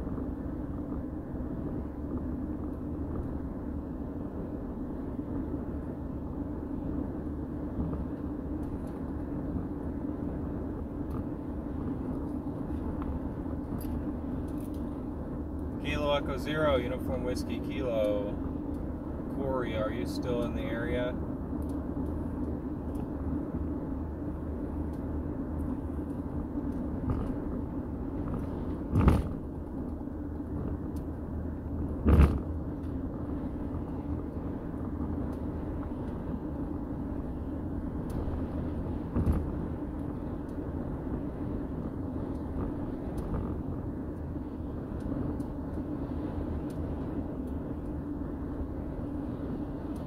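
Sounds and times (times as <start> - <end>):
vehicle road and engine noise: 0.0 - 50.0
sharp thumps: 28.2 - 29.4.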